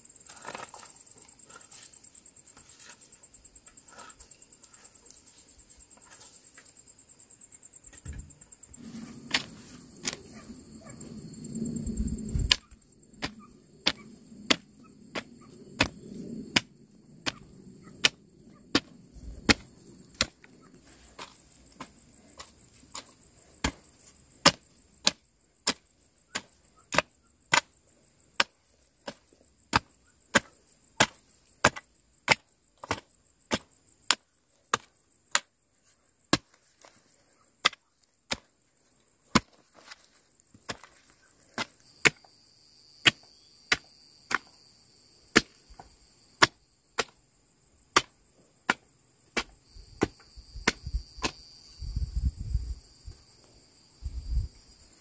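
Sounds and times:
lower insect tone: 0.0 - 55.0
hoe chopping into soil: 8.8 - 10.4, 12.3 - 27.7, 28.4 - 35.5, 36.3 - 37.0, 37.6 - 38.6, 39.3 - 42.3, 43.0 - 44.6, 45.3 - 47.2, 47.9 - 51.4.

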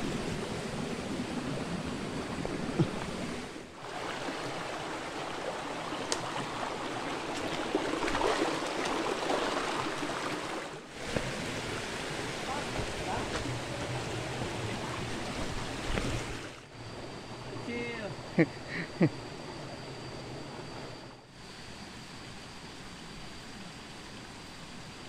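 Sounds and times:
stream rushing over stones: 2.2 - 16.6.

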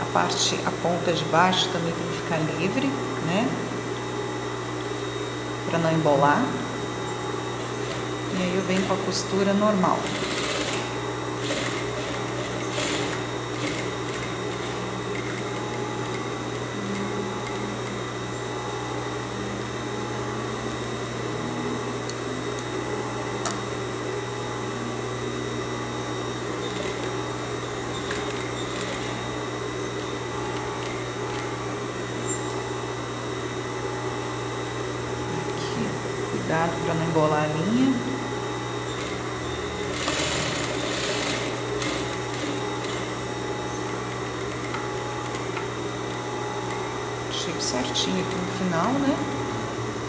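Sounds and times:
sewing machine motor humming: 6.9 - 19.5, 26.1 - 32.8, 35.2 - 50.0.

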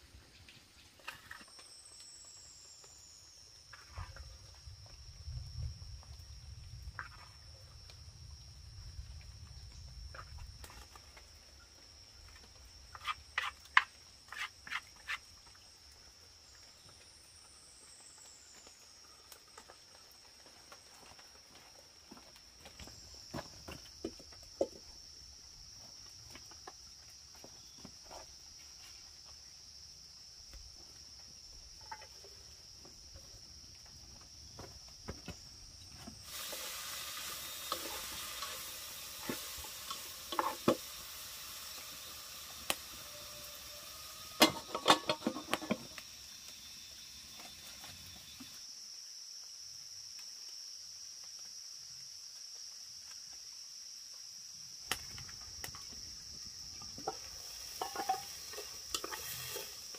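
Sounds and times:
insects chirring: 0.0 - 59.9
steady hiss: 35.3 - 59.9.

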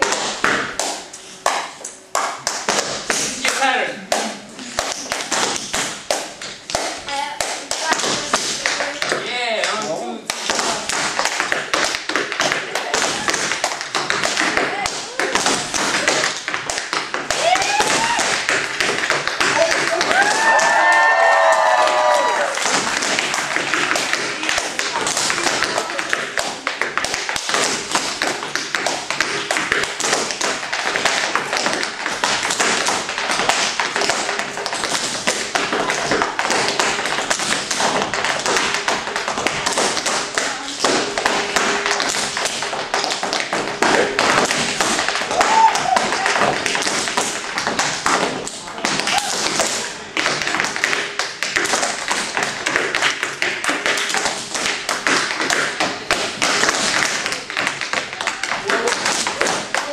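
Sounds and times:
tap shoes on wooden board: 7.8 - 59.9.

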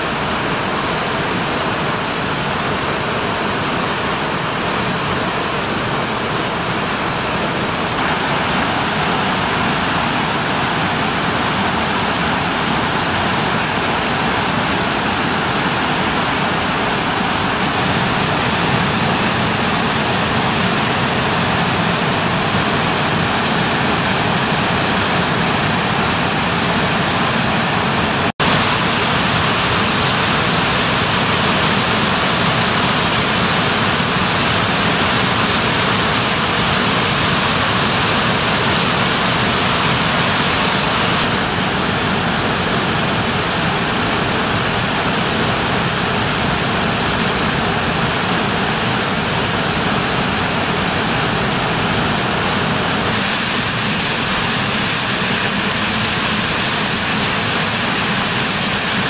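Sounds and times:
stream cascading between boulders: 0.0 - 59.0
waterfall pouring into pool: 7.9 - 59.0.

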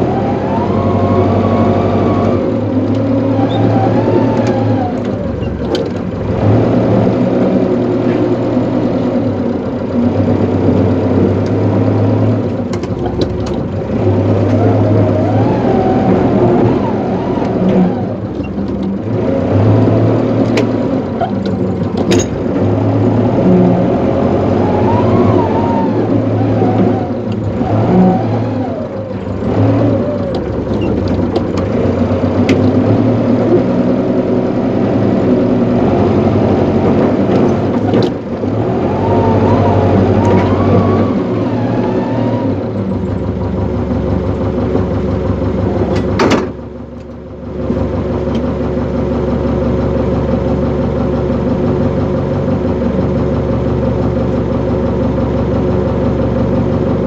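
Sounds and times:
engine running: 0.0 - 57.0.

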